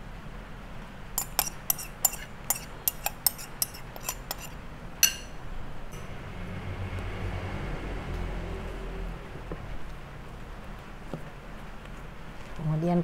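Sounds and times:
metal spoon clinking on glass: 1.2 - 5.4.

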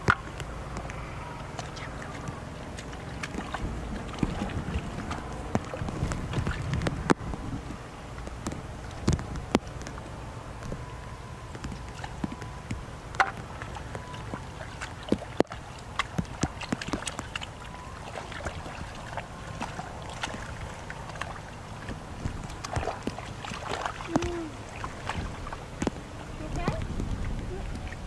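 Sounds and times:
hands sloshing in muddy water: 0.0 - 28.0
small splashes and wet slaps: 0.0 - 28.0.

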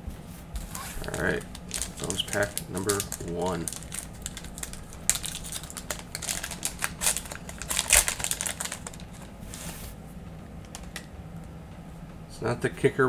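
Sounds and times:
wrapper ripping: 0.6 - 9.7
plastic wrapper crinkling: 0.6 - 9.8, 10.6 - 11.1.

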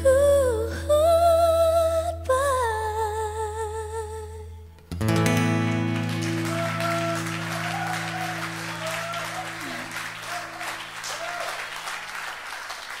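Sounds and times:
audience applause: 5.7 - 13.0
people cheering: 5.7 - 13.0.

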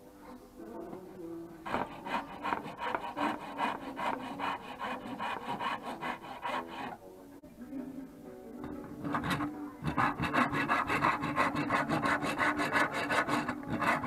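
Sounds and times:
rasp scraping wood: 1.7 - 7.0, 9.0 - 14.0.

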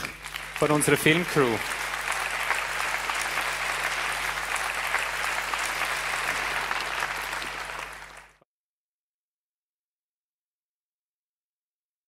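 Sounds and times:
large audience applauding: 0.0 - 8.4.

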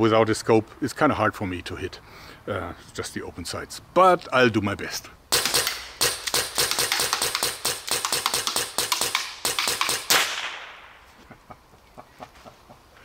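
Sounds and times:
air pistol rapid shots: 5.3 - 10.9.

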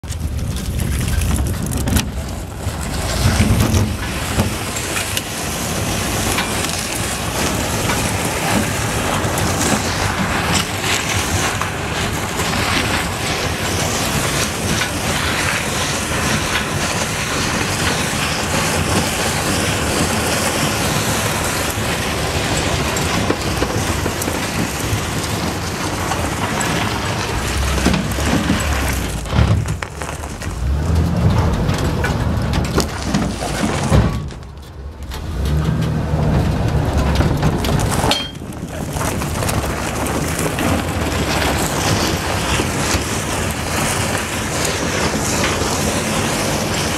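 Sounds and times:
low rumble: 0.0 - 10.3, 23.2 - 43.9
boat hull scraping on gravel: 0.0 - 46.9.

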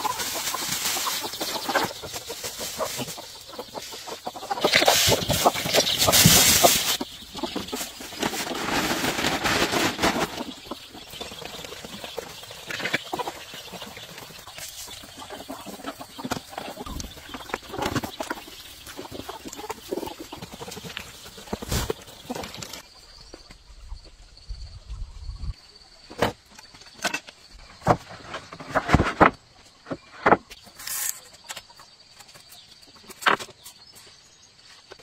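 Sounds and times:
chickens pecking: 0.0 - 23.6
chickens clucking: 0.0 - 24.2
loud rustling: 4.6 - 10.8.

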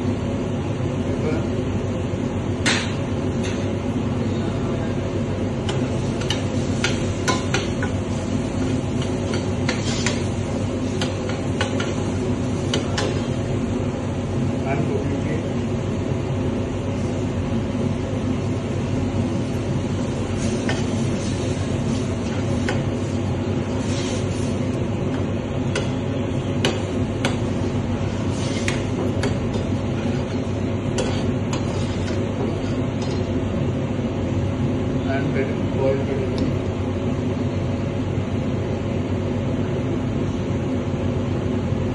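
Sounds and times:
metal spoon scraping frying pan: 28.3 - 33.2.

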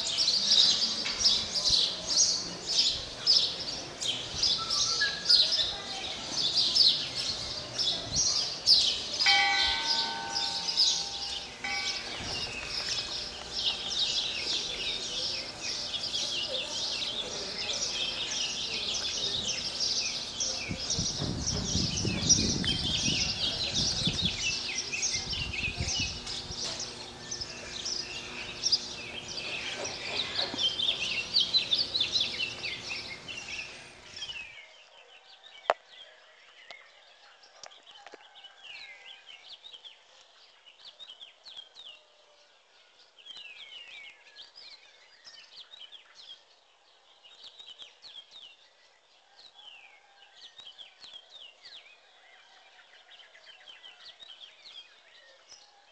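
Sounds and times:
birds chirping: 0.0 - 37.1.

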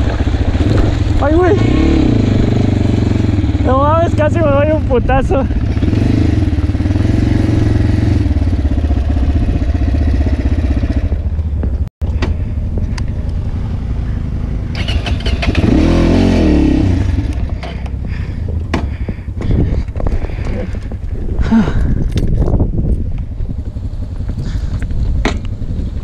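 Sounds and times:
knocks from rough ground: 0.0 - 1.2, 18.6 - 20.7, 24.2 - 25.6
motorcycle engine running: 0.0 - 26.0.

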